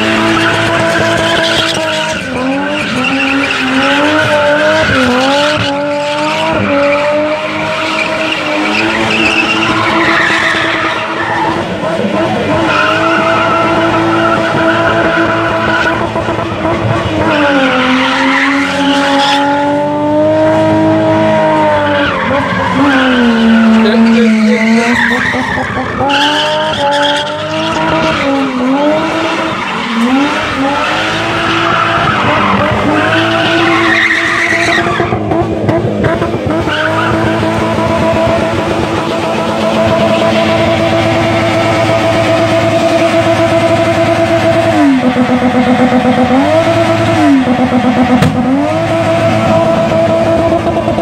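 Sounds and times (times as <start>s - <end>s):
tyres squealing on tarmac: 0.0s - 16.0s, 21.8s - 35.2s, 36.5s - 44.9s
car engine revving: 0.0s - 51.0s.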